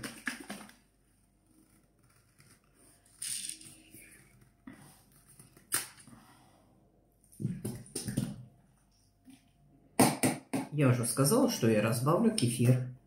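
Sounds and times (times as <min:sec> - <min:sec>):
plastic bottle rustle: 0:00.0 - 0:00.9.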